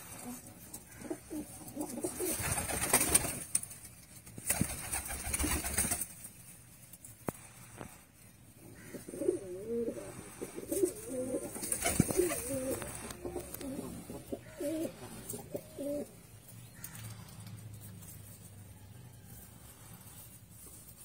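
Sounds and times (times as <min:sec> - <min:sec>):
pigeons cooing: 0:00.0 - 0:03.2, 0:08.6 - 0:18.0.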